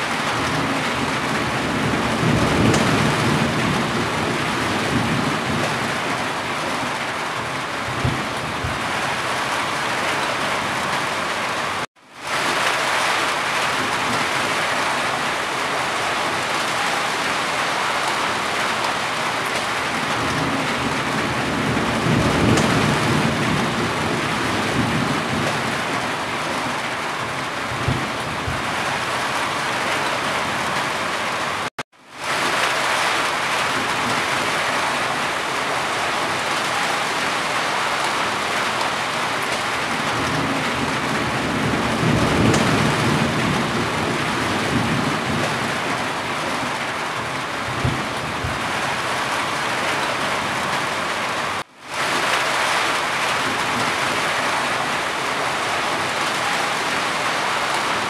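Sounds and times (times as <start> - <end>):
rain drumming on a roof: 0.0 - 58.0.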